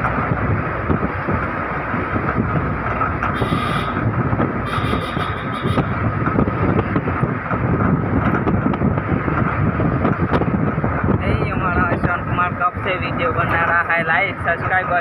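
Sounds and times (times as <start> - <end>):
road noise: 0.0 - 15.0
vehicle engine: 0.0 - 15.0
wind buffeting microphone: 0.0 - 15.0.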